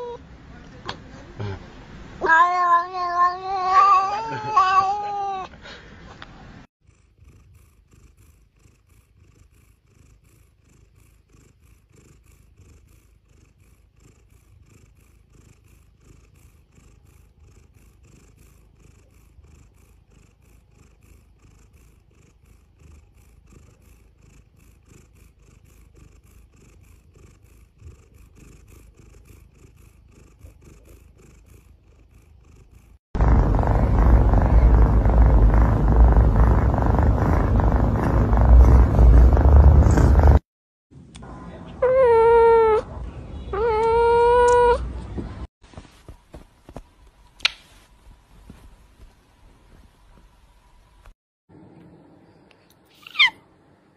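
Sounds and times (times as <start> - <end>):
cat purring: 6.8 - 40.5.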